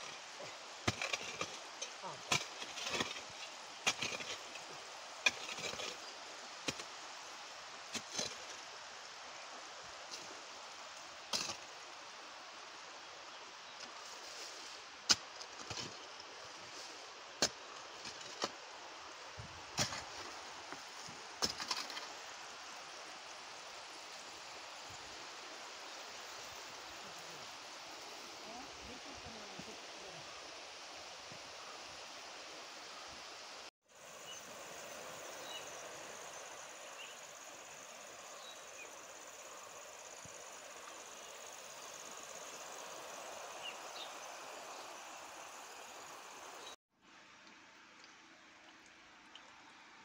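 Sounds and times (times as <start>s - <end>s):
sprinkler water spray hissing: 14.0s - 46.7s.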